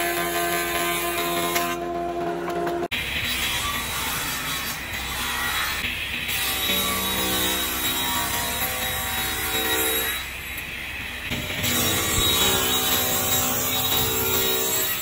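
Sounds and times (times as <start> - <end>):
circular saw cutting wood: 0.0 - 10.4, 11.3 - 15.0.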